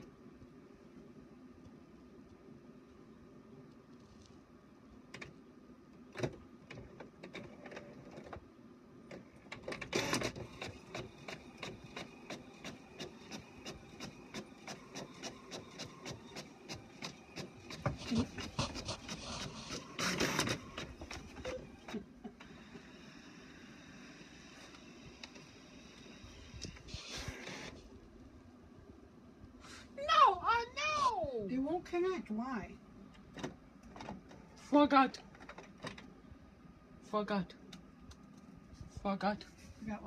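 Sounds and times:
printer clicking: 9.1 - 22.0
printer bursts: 9.7 - 17.8, 19.1 - 23.0.

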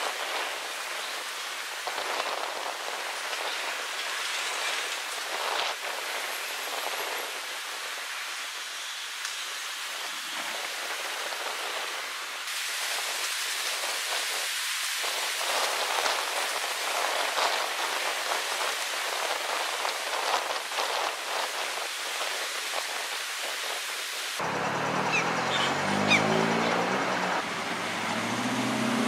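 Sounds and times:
steady hiss: 0.0 - 24.5
diesel excavator engine drone: 24.4 - 29.0.

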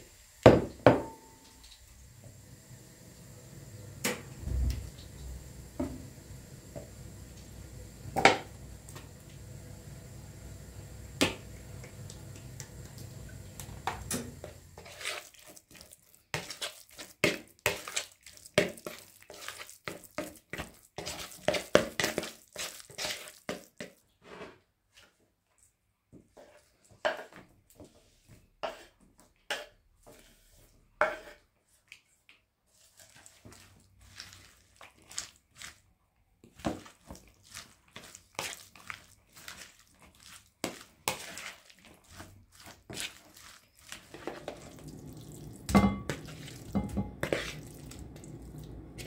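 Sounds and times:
fork scraping wooden cutting board: 14.8 - 15.4, 28.6 - 28.9, 31.0 - 31.4, 46.1 - 48.1
low hum: 44.5 - 49.0.

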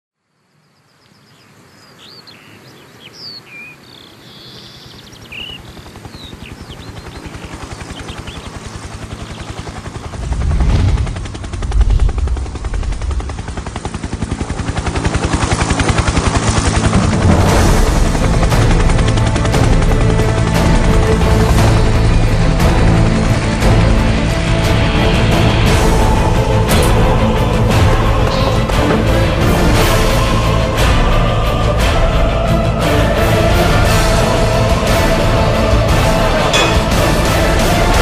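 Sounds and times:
birds chirping: 0.3 - 10.2, 27.0 - 30.3
helicopter rotor chop: 5.2 - 38.0.

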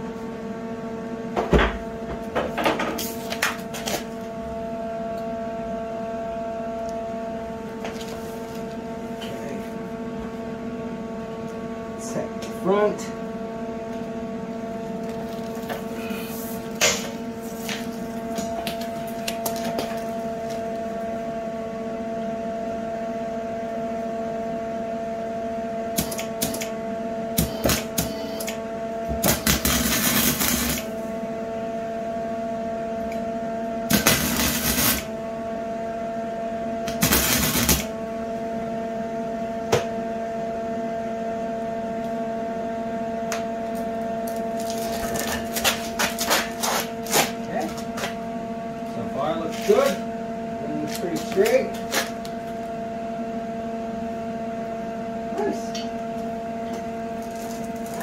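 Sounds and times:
electrical hum: 0.0 - 58.0
welding arc crackling: 26.0 - 26.7, 27.4 - 28.6, 29.2 - 30.9, 33.9 - 35.1, 36.9 - 37.9.

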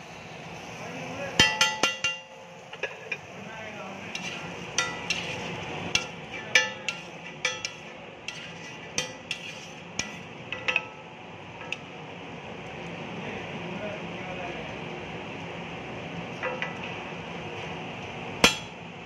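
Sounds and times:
low background hum: 0.0 - 19.0
metal spatula scraping griddle: 4.0 - 10.3.

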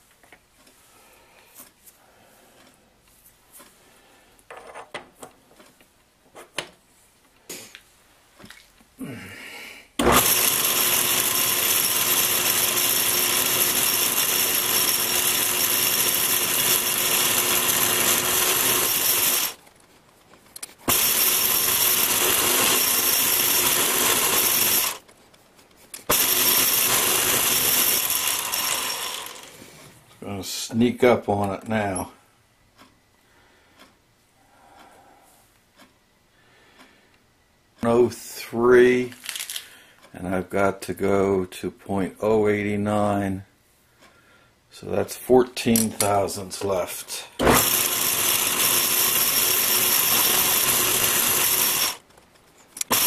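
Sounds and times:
lathe motor whirring: 10.0 - 19.6, 20.8 - 25.1, 26.1 - 29.6, 47.4 - 52.0, 52.8 - 53.0.

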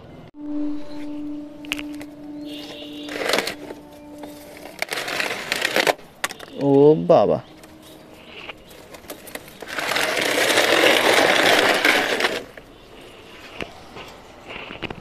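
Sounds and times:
bucket scraping on concrete: 1.6 - 6.6, 7.6 - 13.6.

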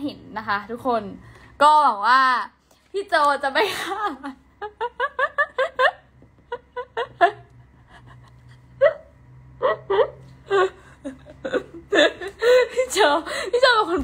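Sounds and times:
woman laughing hard: 3.6 - 13.6.

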